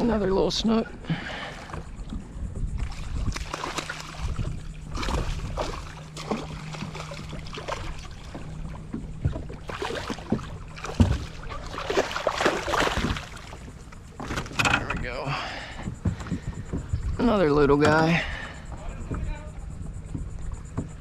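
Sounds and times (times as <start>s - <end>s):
steady low hum: 0.0s - 21.0s
fish splashing in water: 2.8s - 14.6s.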